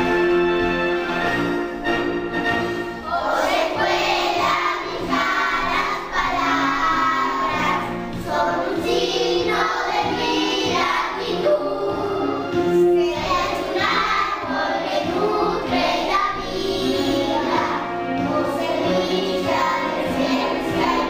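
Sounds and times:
instrumental accompaniment: 0.0 - 21.0
children singing a hymn: 3.0 - 21.0.

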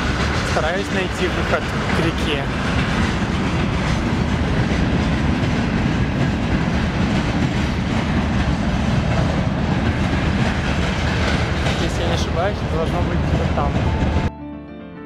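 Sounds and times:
freight train wheels on rails: 0.0 - 14.3.

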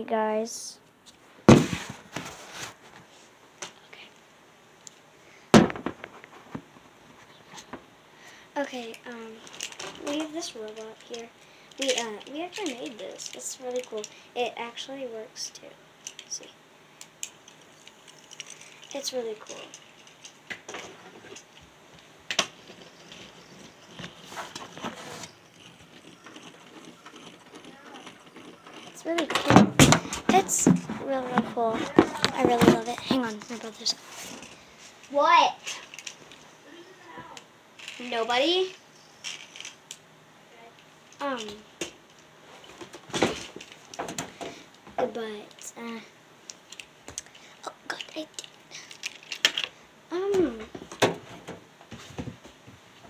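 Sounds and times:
small clicks and rattles: 8.7 - 14.2, 16.0 - 21.7, 31.9 - 36.5, 37.4 - 40.0, 40.8 - 49.8.

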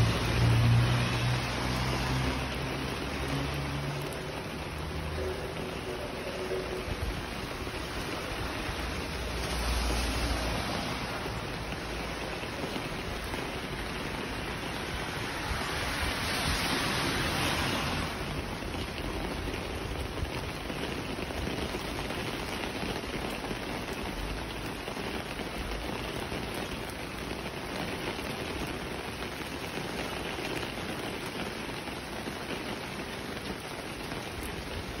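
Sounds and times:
heavy rain on wet street: 0.0 - 35.0.

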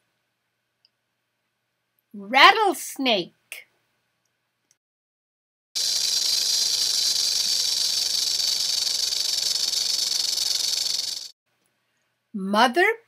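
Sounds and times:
rattlesnake tail rattle buzzing: 5.8 - 11.4.

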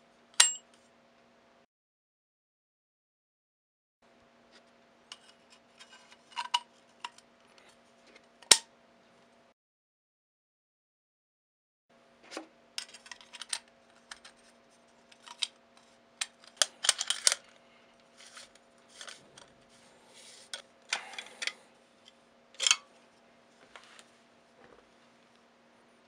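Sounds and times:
metal gun parts clicking and clinking: 12.8 - 17.6, 18.2 - 19.5, 20.5 - 21.6, 22.6 - 22.9.

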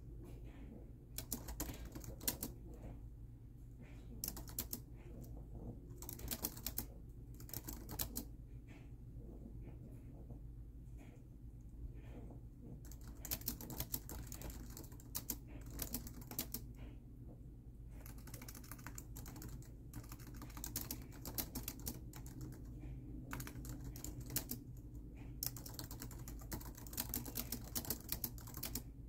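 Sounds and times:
steady low hum: 0.0 - 29.0
laptop keyboard typing: 1.2 - 2.6, 4.2 - 5.3, 5.9 - 8.3, 12.8 - 16.7, 17.9 - 28.9.

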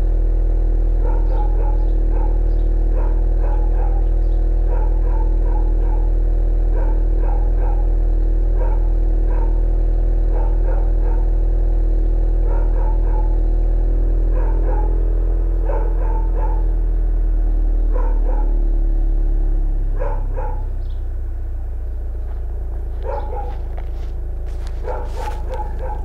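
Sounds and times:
car engine idling: 0.0 - 26.0
dog barking: 0.9 - 11.6, 12.2 - 13.6, 14.2 - 16.9, 17.8 - 18.8, 19.9 - 20.8, 22.4 - 26.0.

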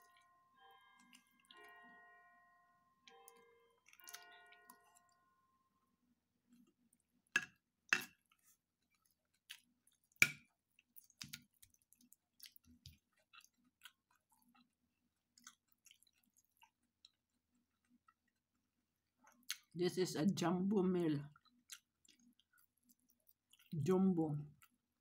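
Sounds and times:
person chewing: 3.3 - 5.1, 7.9 - 19.7, 21.4 - 23.7.

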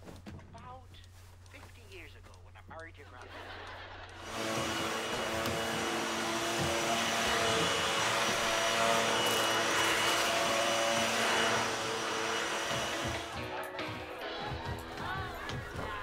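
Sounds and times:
vacuum cleaner running: 4.2 - 15.9.

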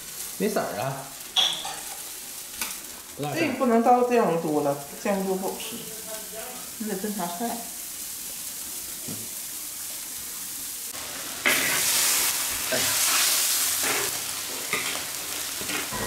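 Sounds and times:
food bubbling with a hiss: 0.0 - 16.0
food sizzling: 0.0 - 16.0
spatula scraping a wok: 11.0 - 16.0.

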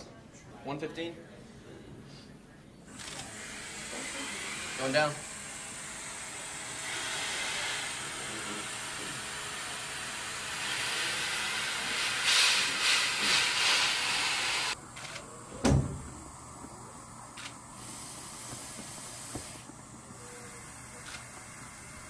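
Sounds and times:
air hissing through pressure suit: 3.1 - 14.8, 17.8 - 22.0.

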